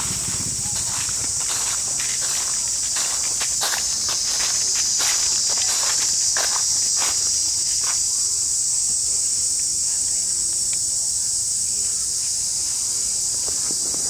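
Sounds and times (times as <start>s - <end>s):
high-pitched insect chorus: 0.0s - 14.0s.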